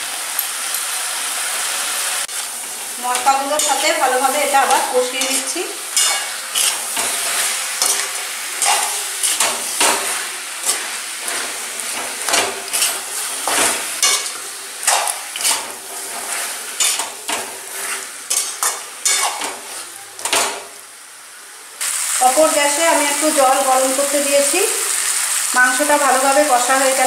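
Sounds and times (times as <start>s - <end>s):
meat sizzling in oil: 0.0s - 27.0s
metal spatula scraping a pan: 2.4s - 20.5s.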